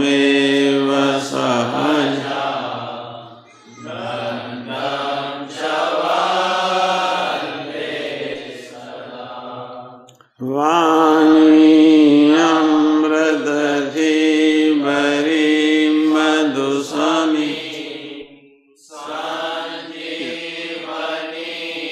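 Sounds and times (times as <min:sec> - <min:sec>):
person singing devotional hymn: 0:00.0 - 0:21.9.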